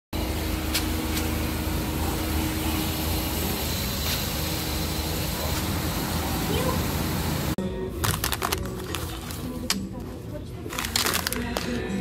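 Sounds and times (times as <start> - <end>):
fuel pump humming: 0.2 - 7.6.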